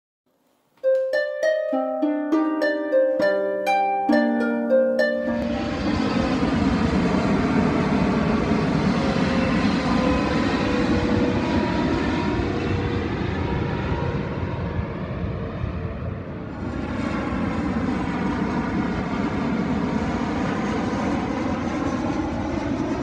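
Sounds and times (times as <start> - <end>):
plucked harp-like music: 0.8 - 6.5
jet airliner engines roaring: 5.5 - 23.0.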